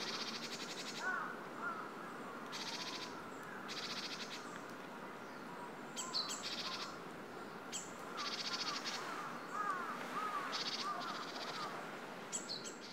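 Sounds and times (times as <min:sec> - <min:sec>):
faint background hiss: 0:00.0 - 0:12.9.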